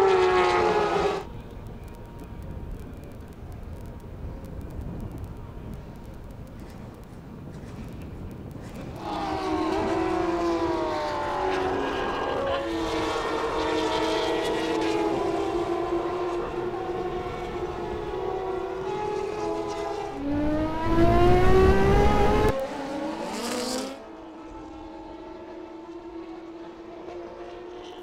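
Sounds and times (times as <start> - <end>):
race car engines: 0.0 - 28.0
deep passing rumble: 20.1 - 22.6.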